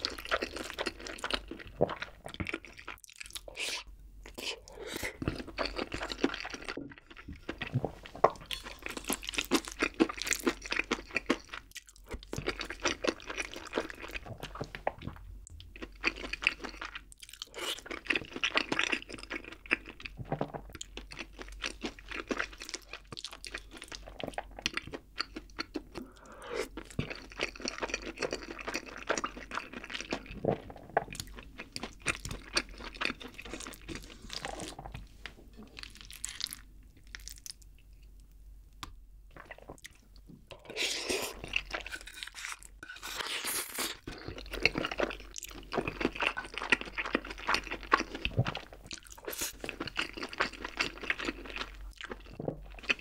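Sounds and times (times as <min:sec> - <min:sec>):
wet chewing: 0:39.4 - 0:53.0.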